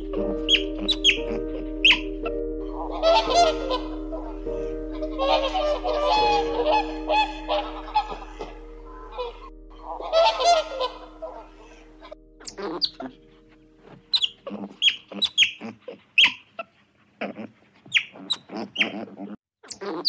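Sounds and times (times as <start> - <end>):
raccoon squeaky chirps: 0.0 - 13.2, 13.8 - 16.7, 17.8 - 20.0
honking call: 0.0 - 13.3.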